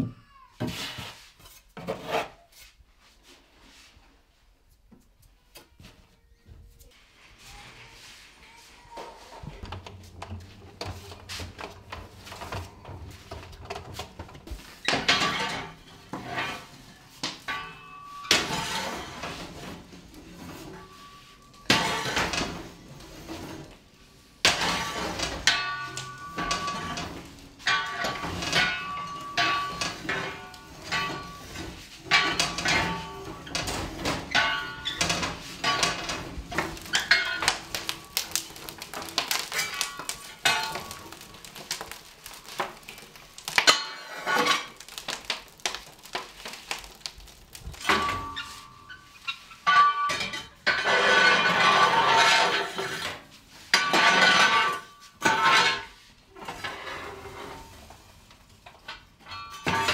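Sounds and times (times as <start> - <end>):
metal tools clanking: 24.5 - 45.0, 47.6 - 53.2.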